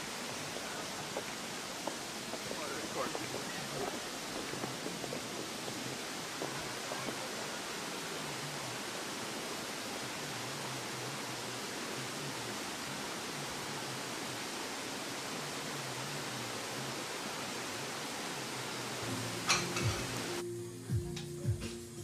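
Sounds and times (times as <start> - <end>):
waterfall rushing: 0.0 - 20.4.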